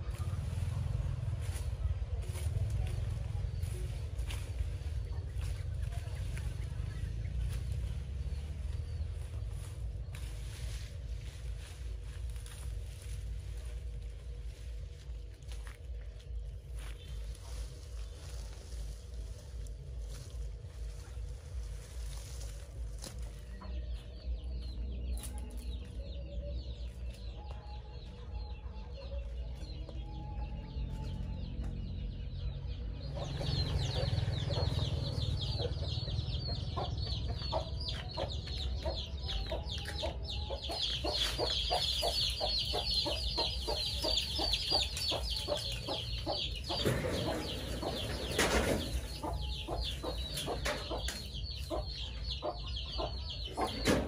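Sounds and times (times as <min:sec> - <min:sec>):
chickens clucking: 0:00.0 - 0:54.0
high-pitched chirps chatter: 0:33.1 - 0:48.3.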